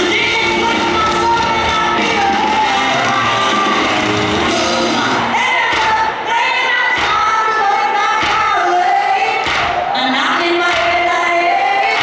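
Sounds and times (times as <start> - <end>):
rock band playing: 0.0 - 5.5
woman singing: 0.0 - 12.0.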